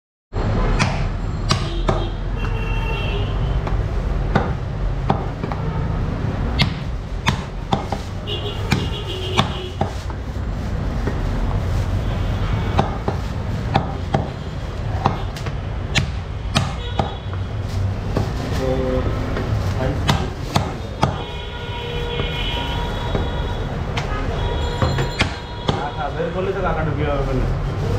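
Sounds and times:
cleaver chopping on wooden block: 4.3 - 5.6, 6.6 - 8.0, 20.0 - 21.2.

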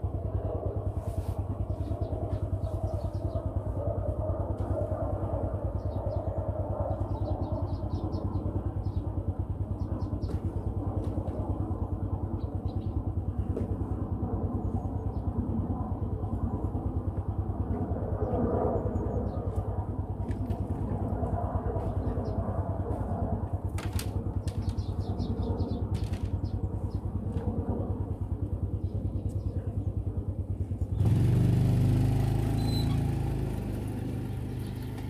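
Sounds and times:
engine chugging: 0.0 - 18.4, 23.5 - 35.0
bird chirps: 32.5 - 33.1.

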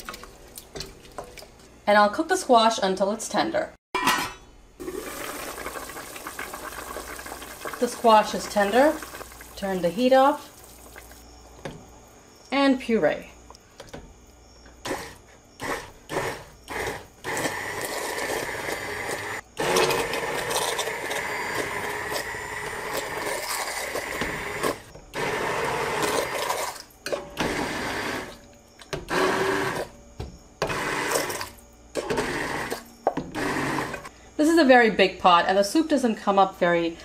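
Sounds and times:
hand blender motor running: 14.8 - 26.7, 29.1 - 29.8, 33.4 - 34.1.

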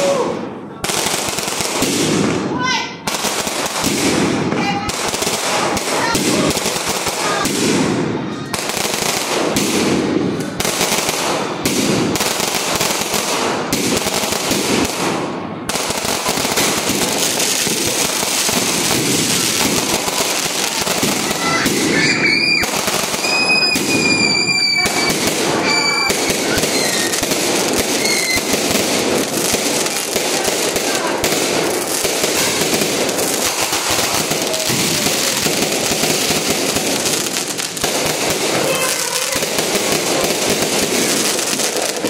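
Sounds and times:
fireworks crackling and banging: 0.0 - 42.0
firework whistles: 21.0 - 28.6.

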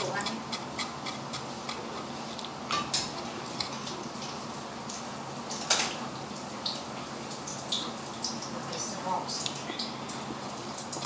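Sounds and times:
wet chewing and sipping: 0.0 - 4.4.

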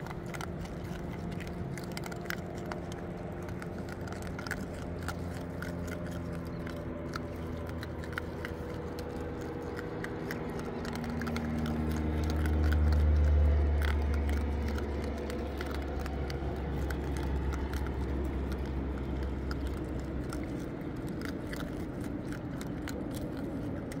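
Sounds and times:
low droning hum: 0.0 - 24.0
raccoons crunching dry food: 0.0 - 24.0.

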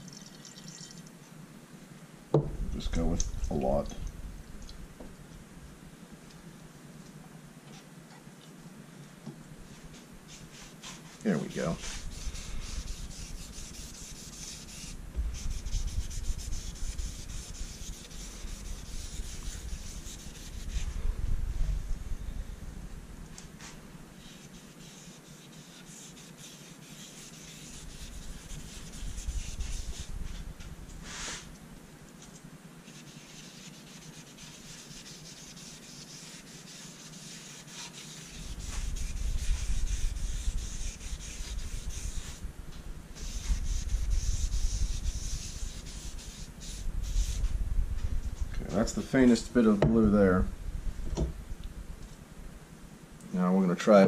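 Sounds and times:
cloth pad rubbing on wood: 9.7 - 21.0, 23.6 - 30.4, 31.0 - 31.5, 32.8 - 42.4, 43.2 - 47.5
low rumble: 15.0 - 17.4, 20.6 - 23.3, 46.8 - 52.6.

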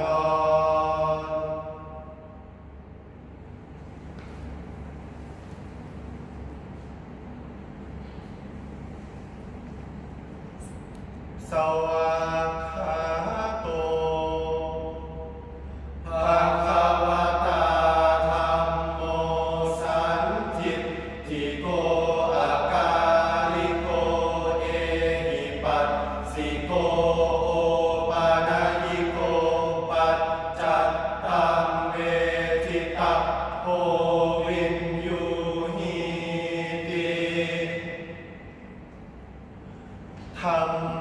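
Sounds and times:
men chanting verse: 0.0 - 2.4, 11.4 - 38.4, 40.2 - 41.0.

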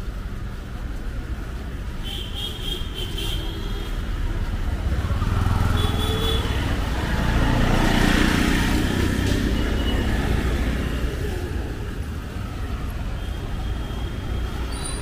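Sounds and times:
traffic rumble: 0.0 - 15.0
vehicle passing close: 4.7 - 12.9.

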